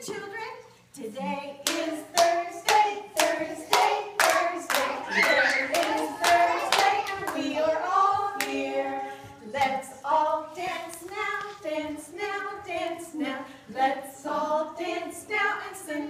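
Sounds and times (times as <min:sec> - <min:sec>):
adults singing without instruments: 0:00.0 - 0:16.0
hands clapping: 0:01.6 - 0:07.4.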